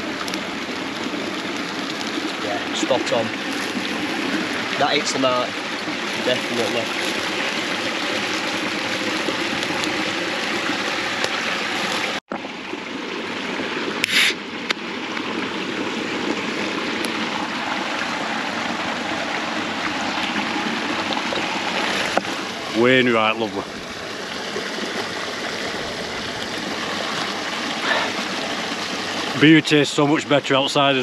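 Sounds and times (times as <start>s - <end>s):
stream running: 0.0s - 31.0s
short loud hiss: 14.0s - 14.4s.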